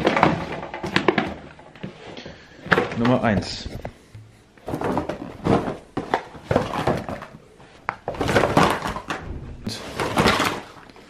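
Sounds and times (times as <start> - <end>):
boxes knocking: 0.0 - 1.6, 4.6 - 7.4, 8.0 - 10.8.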